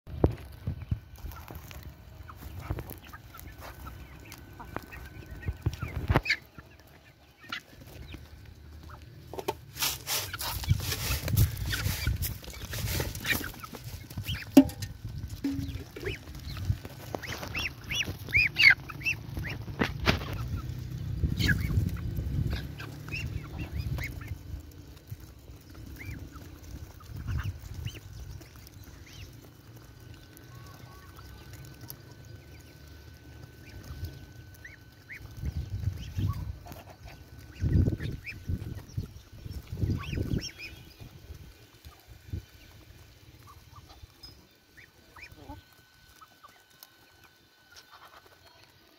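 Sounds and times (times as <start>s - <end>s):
high peeping calls of birds: 0.1s - 48.9s.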